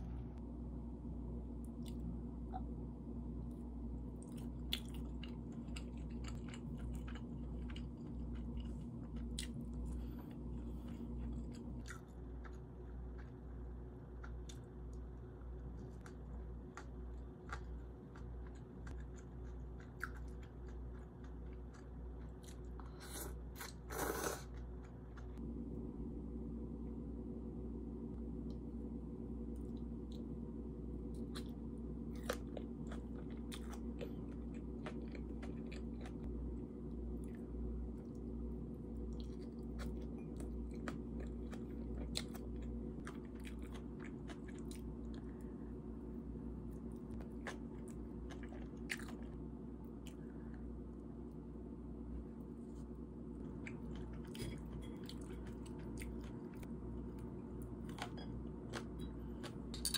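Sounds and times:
low room hum: 0.0s - 59.9s
chewing and biting food: 4.2s - 25.4s, 31.1s - 36.3s, 39.0s - 45.5s, 46.7s - 50.7s, 53.4s - 59.7s.

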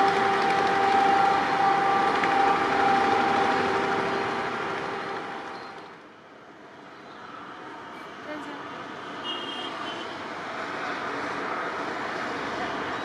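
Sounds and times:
steady high tone: 0.0s - 6.0s
train wheels on rails: 0.0s - 6.1s.

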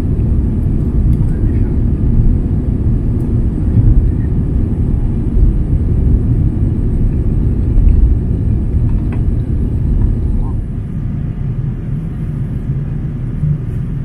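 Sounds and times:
jet engines rumbling in cabin: 0.0s - 14.0s.

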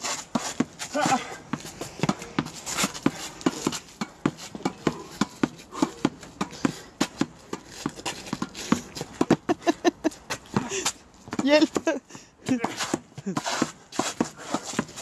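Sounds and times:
tennis balls struck with racket: 0.3s - 9.6s, 10.3s - 11.9s
tennis balls bouncing on court: 0.3s - 15.0s.

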